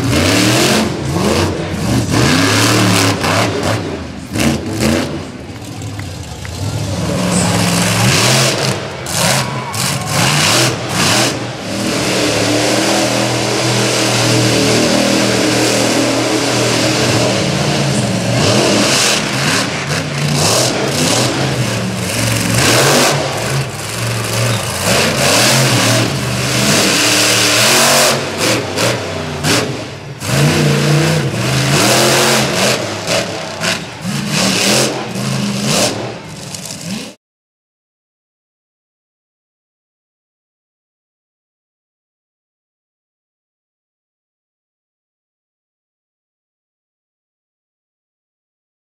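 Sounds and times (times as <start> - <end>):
monster truck engines revving: 0.0 - 37.2.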